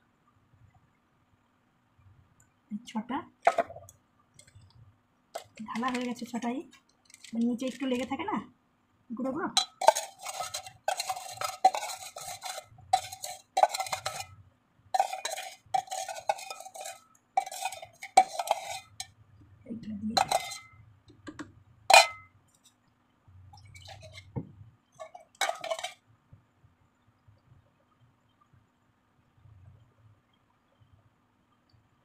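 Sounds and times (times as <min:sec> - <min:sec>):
spoon scraping metal tumbler: 0:03.5 - 0:04.7, 0:05.4 - 0:08.2, 0:09.5 - 0:14.4, 0:15.0 - 0:19.1, 0:20.1 - 0:20.8, 0:21.9 - 0:22.7, 0:23.6 - 0:24.4, 0:25.0 - 0:26.0
spoon clinking against metal: 0:09.6 - 0:14.3, 0:15.0 - 0:19.1, 0:20.2 - 0:20.7, 0:21.9 - 0:22.3, 0:25.0 - 0:26.0.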